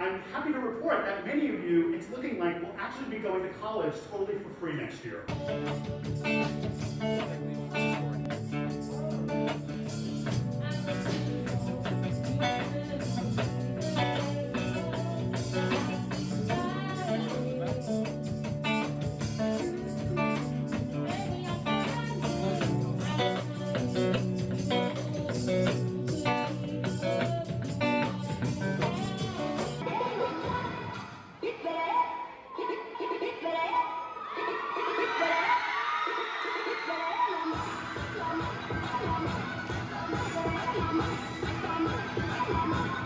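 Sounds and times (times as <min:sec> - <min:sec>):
plucked and strummed guitars: 0:05.3 - 0:29.8.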